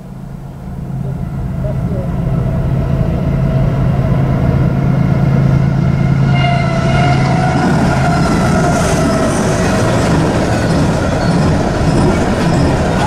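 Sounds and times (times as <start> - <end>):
higher steady tone: 0.0 - 7.3
diesel locomotive engines droning: 0.0 - 13.0.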